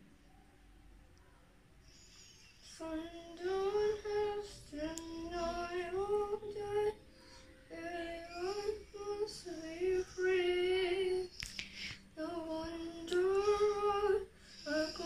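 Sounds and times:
girl singing: 2.7 - 7.0, 7.7 - 11.4, 12.2 - 15.0.

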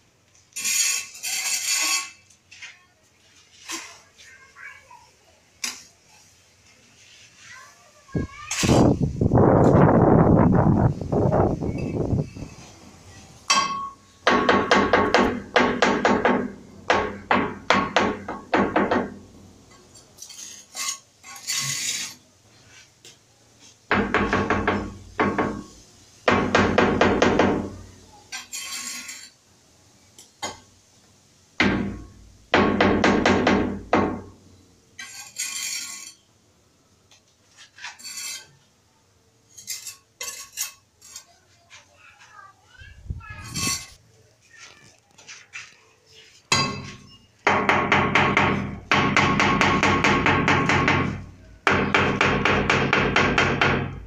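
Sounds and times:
trowel scraping over tiles: 0.4 - 2.8, 3.4 - 4.2, 19.7 - 22.9, 28.3 - 29.4, 35.0 - 36.3, 37.4 - 38.7, 39.4 - 41.4, 43.4 - 44.0.

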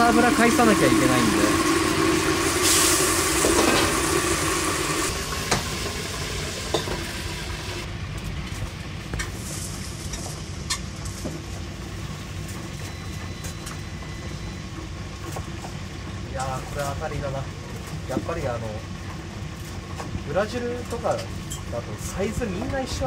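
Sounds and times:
frying oil sizzling: 0.0 - 23.0
low kitchen rumble: 0.0 - 23.0.

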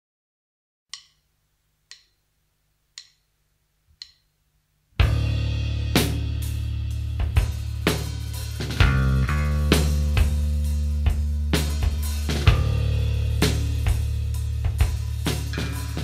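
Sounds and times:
count-in clicks: 0.9 - 1.3, 1.9 - 2.2, 2.9 - 3.3, 4.0 - 4.3
rock band playing: 5.0 - 16.0.

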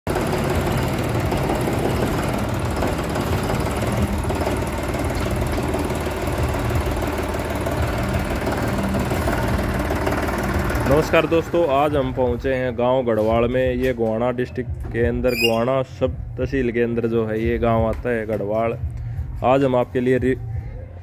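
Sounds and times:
tractor diesel engine running: 0.0 - 12.6.

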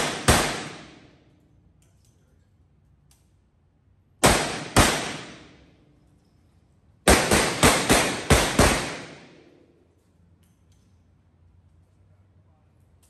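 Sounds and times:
revolver gunshots echoing indoors: 0.0 - 2.2, 2.9 - 10.9.

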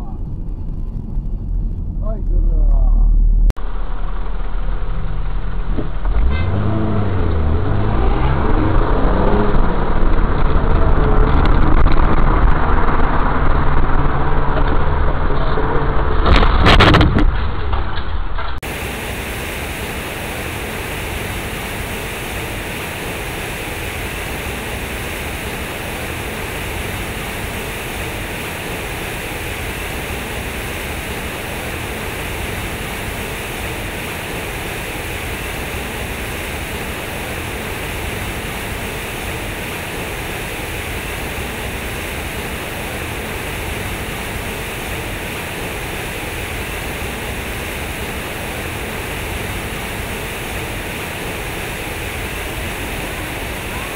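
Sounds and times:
fountain water splashing: 18.6 - 53.9.

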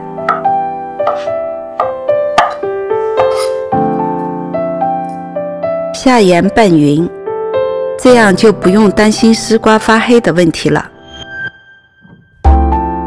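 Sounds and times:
gentle piano music: 0.0 - 11.1, 12.0 - 13.0
cleaver knocking on chopping board: 0.3 - 2.6.

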